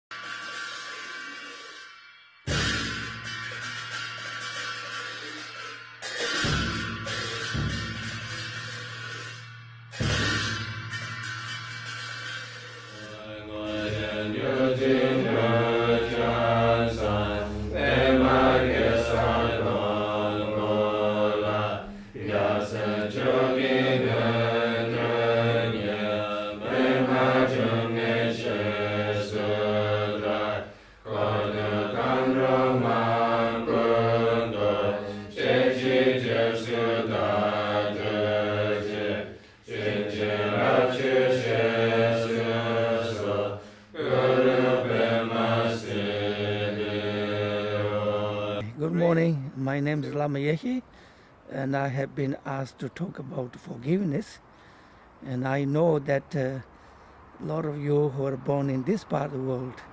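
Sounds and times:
melodic chant: 6.0s - 50.9s.

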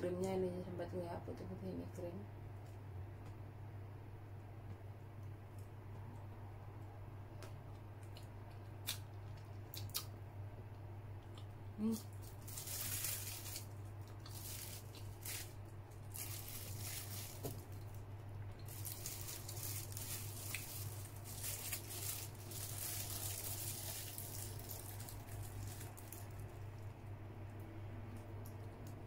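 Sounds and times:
steady low hum: 0.0s - 29.0s
chewing and wet mouth sounds: 7.4s - 12.4s, 17.7s - 29.0s
plastic bag crinkling: 11.8s - 26.9s.

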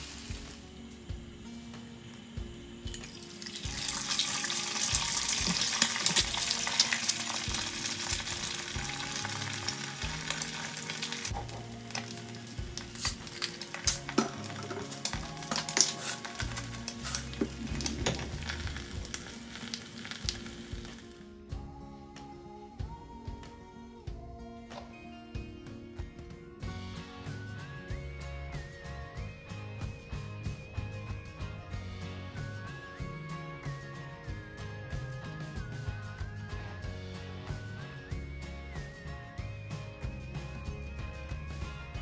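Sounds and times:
egg sizzling in hot oil: 0.0s - 0.9s, 2.8s - 21.2s.

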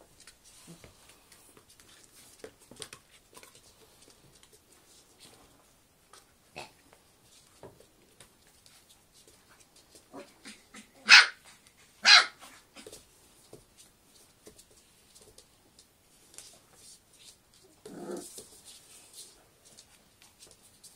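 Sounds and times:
puppy barking: 10.8s - 11.4s, 12.0s - 12.4s.

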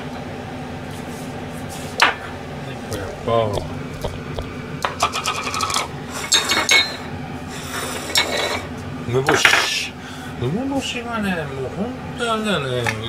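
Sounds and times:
ceramic plates clinking: 4.9s - 7.1s.

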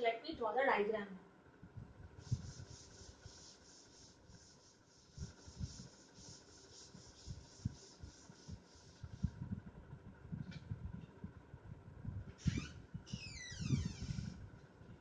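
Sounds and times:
cloth rubbing chalkboard: 2.2s - 9.4s.

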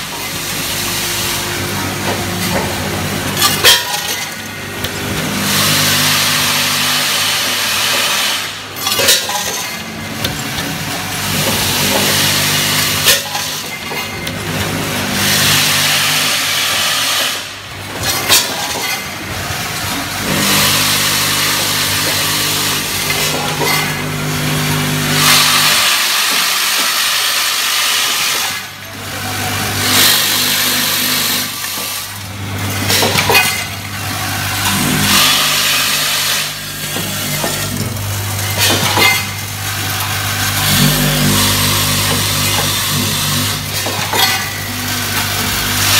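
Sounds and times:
screws rattling in metal bowls: 3.4s - 14.4s
machine low hum: 28.8s - 45.9s.

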